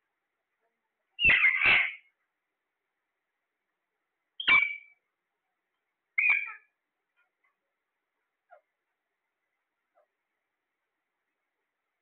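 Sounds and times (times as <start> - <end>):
parakeets squawking: 1.2 - 2.1, 4.4 - 5.0, 6.2 - 6.7.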